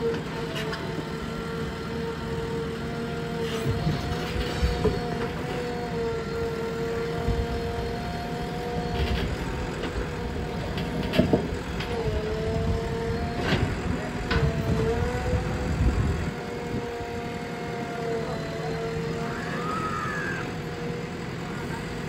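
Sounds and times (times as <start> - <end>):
backhoe diesel engine running: 0.0 - 22.0.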